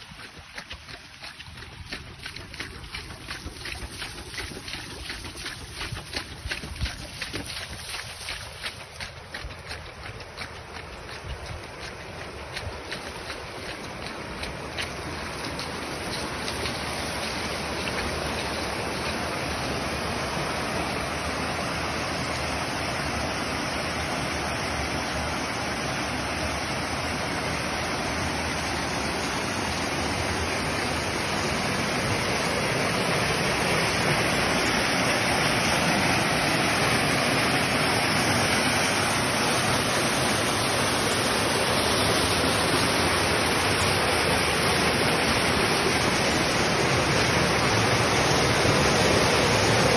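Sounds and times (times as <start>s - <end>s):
floodwater rushing: 0.0s - 49.9s.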